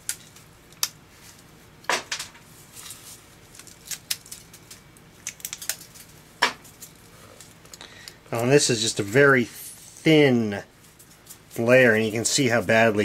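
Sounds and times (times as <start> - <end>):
battery casing clicking and crackling: 3.6 - 6.1.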